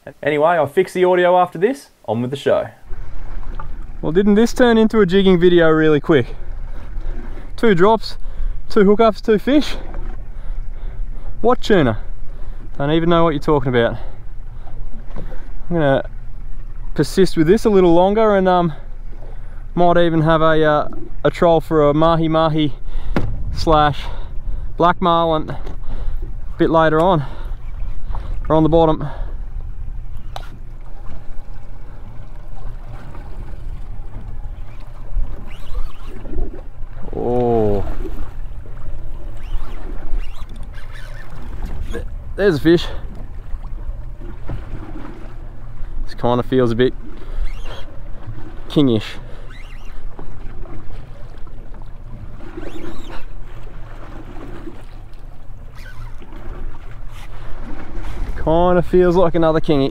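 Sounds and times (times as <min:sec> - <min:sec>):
wind and water rumble: 0:00.0 - 0:59.9
low rumble: 0:22.9 - 0:25.1.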